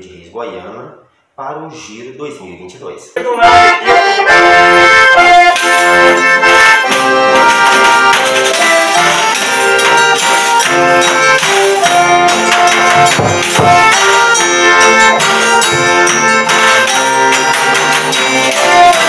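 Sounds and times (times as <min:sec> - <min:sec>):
accordion chords: 0:03.2 - 0:19.0
plucked small guitars: 0:03.2 - 0:19.0
stick-beaten drum: 0:05.5 - 0:19.0
jingling tambourine: 0:05.6 - 0:19.0.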